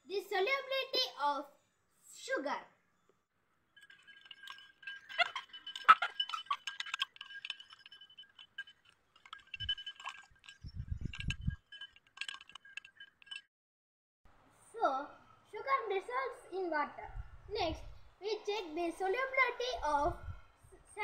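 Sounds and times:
spoon clinking against glass: 0:03.8 - 0:13.5.

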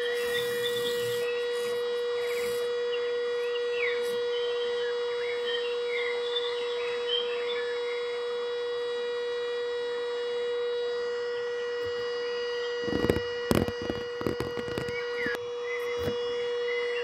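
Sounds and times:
steady ringing tone: 0:00.0 - 0:17.0
birds chirping: 0:00.1 - 0:08.2, 0:14.6 - 0:17.0.

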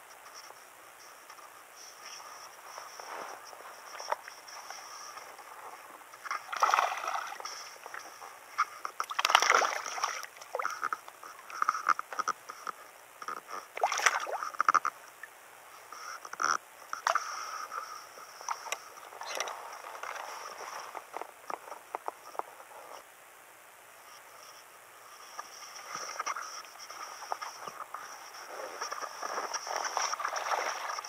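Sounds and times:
fish splashing in water: 0:06.3 - 0:08.0, 0:09.0 - 0:11.7, 0:13.8 - 0:14.8, 0:29.8 - 0:31.0.

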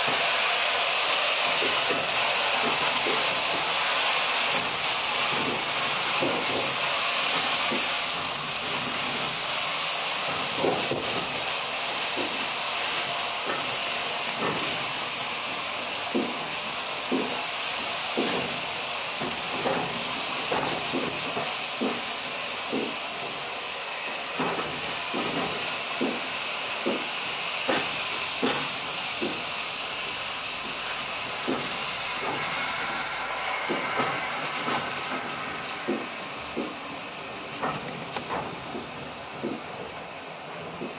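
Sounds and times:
steam locomotive hissing: 0:00.0 - 0:40.9
knocks from moving train: 0:01.6 - 0:03.8, 0:04.5 - 0:08.0, 0:10.2 - 0:11.5, 0:12.1 - 0:12.5, 0:13.4 - 0:14.9, 0:16.1 - 0:17.4, 0:18.2 - 0:22.1, 0:22.7 - 0:23.4, 0:24.3 - 0:29.5, 0:31.4 - 0:36.9, 0:37.5 - 0:40.0, 0:40.6 - 0:40.9.

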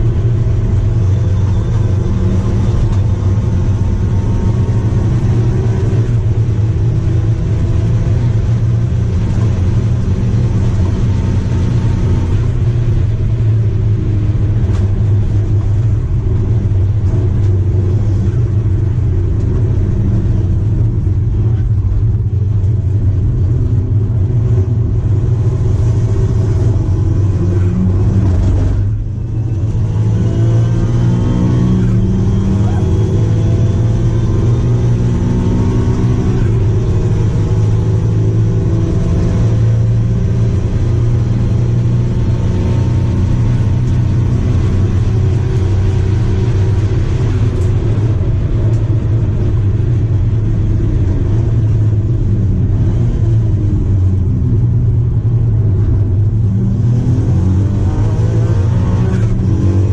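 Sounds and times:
car engine revving hard: 0:24.6 - 0:54.0, 0:55.5 - 0:59.9.

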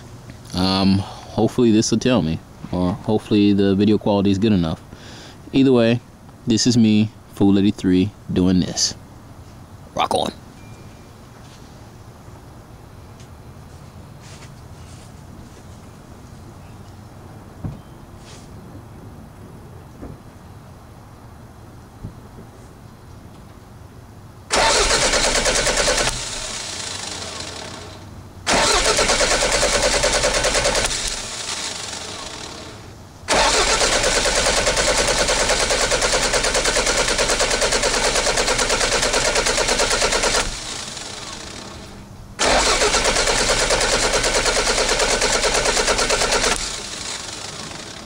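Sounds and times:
engine cranking on starter: 0:24.5 - 0:48.0.

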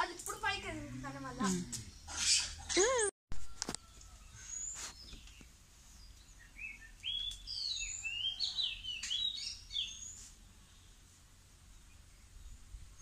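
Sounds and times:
songbird chirping and whistling: 0:03.8 - 0:10.3.

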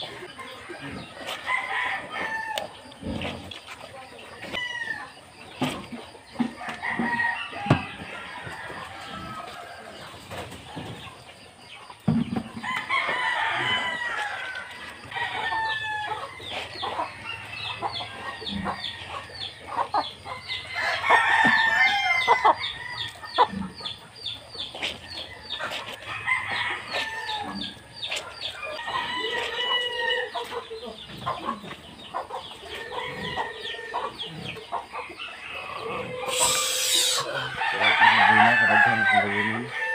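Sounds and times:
chickens crowing and clucking: 0:00.0 - 0:39.9.

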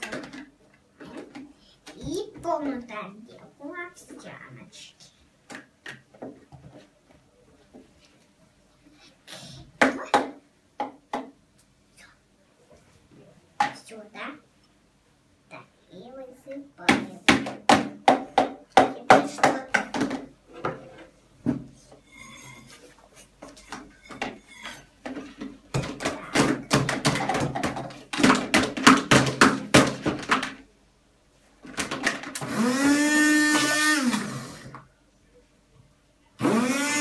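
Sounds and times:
hand blender running: 0:32.4 - 0:34.7, 0:36.4 - 0:37.0.

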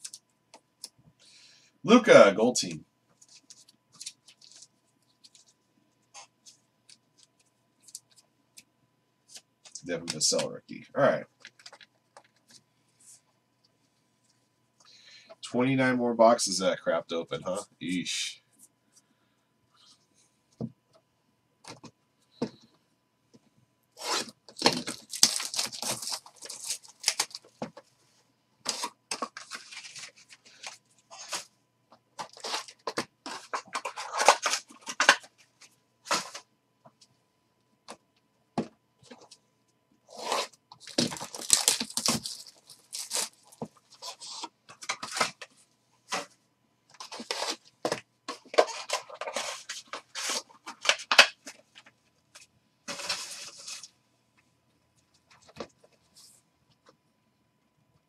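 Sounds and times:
plastic wrap and cardboard tearing: 0:24.0 - 0:27.6, 0:32.2 - 0:35.2, 0:40.1 - 0:45.4, 0:47.0 - 0:47.6, 0:48.5 - 0:51.4
foil packs crinkling: 0:24.0 - 0:27.8, 0:32.2 - 0:35.2, 0:40.1 - 0:45.5.

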